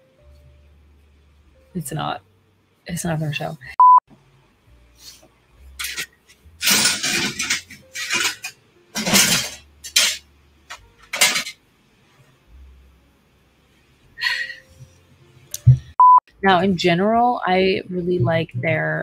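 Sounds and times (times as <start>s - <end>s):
hard objects clattering: 5.8s - 11.6s.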